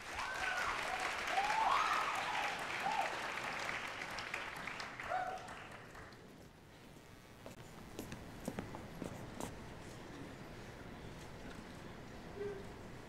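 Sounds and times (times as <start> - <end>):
short cheers: 0.0 - 3.7
audience applauding: 0.0 - 6.3.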